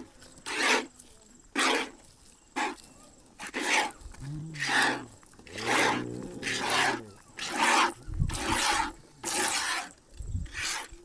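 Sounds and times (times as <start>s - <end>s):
cow lowing: 3.4s - 9.9s.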